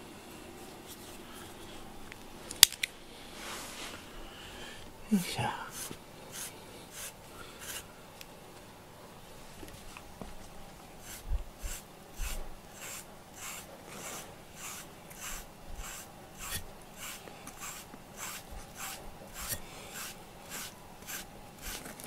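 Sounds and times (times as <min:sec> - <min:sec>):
brush raking through cat fur: 0:03.2 - 0:04.1, 0:05.6 - 0:07.9, 0:09.5 - 0:22.0.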